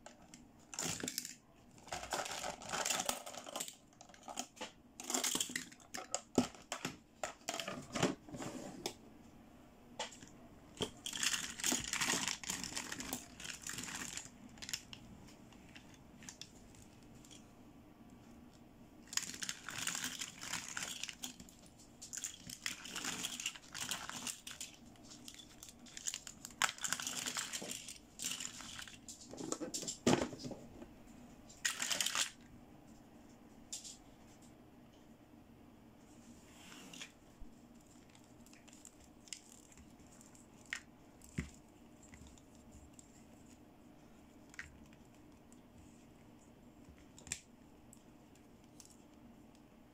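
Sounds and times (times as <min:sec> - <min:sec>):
plastic toys clicking: 0:00.0 - 0:07.7
plastic rustling: 0:00.0 - 0:08.4, 0:10.2 - 0:17.4, 0:19.0 - 0:30.5, 0:31.5 - 0:32.4.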